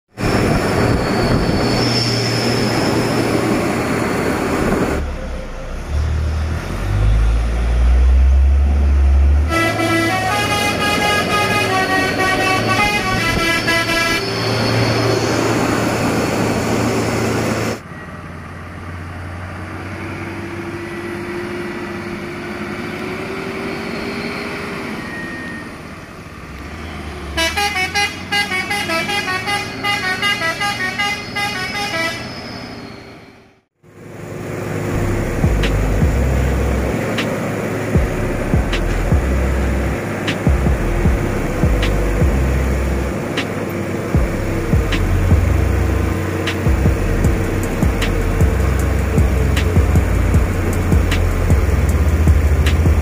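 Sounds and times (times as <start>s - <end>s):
diesel engine running: 0.1s - 29.9s, 33.8s - 53.0s
deep truck rumble: 0.1s - 31.4s, 33.6s - 53.0s
engine whine: 0.1s - 32.1s, 32.7s - 53.0s
multi-tone truck horns: 9.2s - 16.6s, 26.7s - 32.7s.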